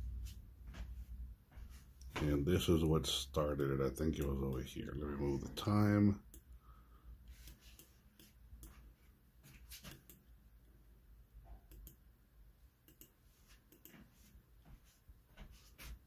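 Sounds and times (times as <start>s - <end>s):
computer mouse clicks: 9.8s - 10.3s, 11.6s - 12.0s, 12.8s - 14.0s.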